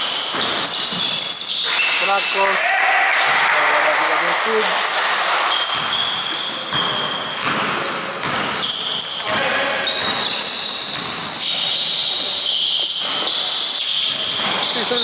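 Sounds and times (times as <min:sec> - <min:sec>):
sneakers squeaking on wooden floor: 0:00.0 - 0:02.5, 0:03.1 - 0:15.0
basketball bouncing: 0:00.3 - 0:01.7, 0:03.1 - 0:12.2.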